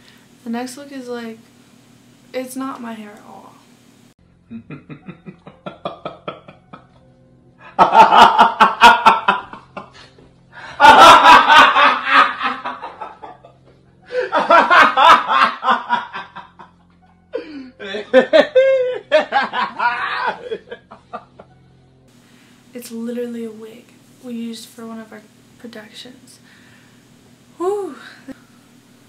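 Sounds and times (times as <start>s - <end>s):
woman talking: 0.4s - 1.5s, 2.3s - 3.7s, 22.7s - 26.4s, 27.6s - 28.4s
woman laughing hard: 4.5s - 7.0s, 7.7s - 16.8s, 17.4s - 21.4s.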